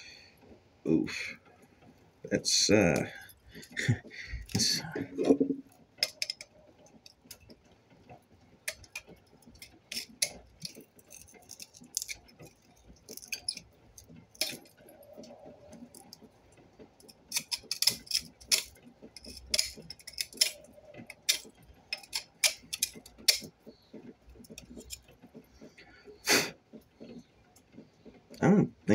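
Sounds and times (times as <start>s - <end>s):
metallic clicks of small parts: 2.5s - 16.3s, 16.9s - 25.7s.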